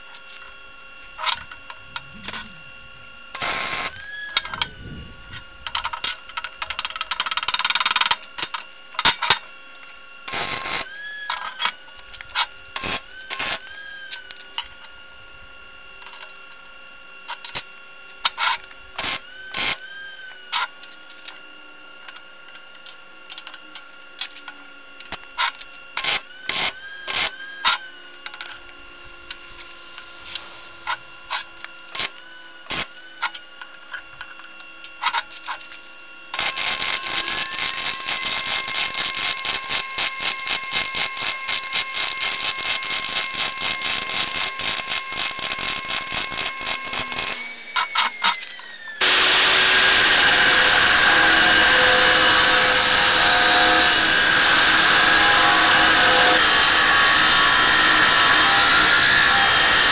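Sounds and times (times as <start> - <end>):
welder arc crackling: 1.5 - 5.5, 36.4 - 47.4, 49.0 - 59.9.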